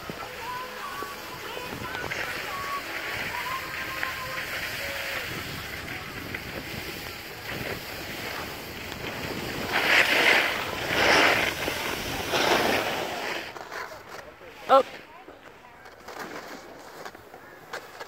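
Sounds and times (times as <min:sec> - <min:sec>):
skis hissing over snow: 0:00.0 - 0:15.1
skis scraping snow: 0:00.0 - 0:18.0
wind on microphone: 0:03.2 - 0:13.0.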